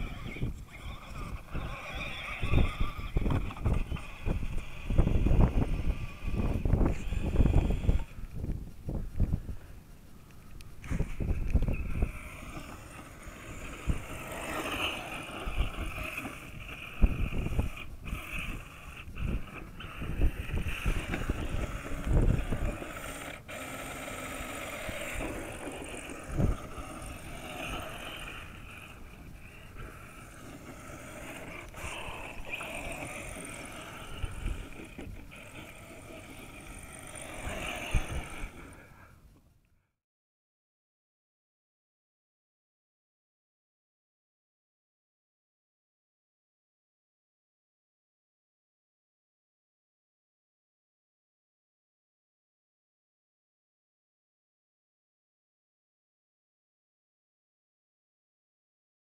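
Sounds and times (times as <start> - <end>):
toy truck motor whining: 0.0 - 8.3, 10.8 - 39.2
wind buffeting microphone: 0.0 - 39.0.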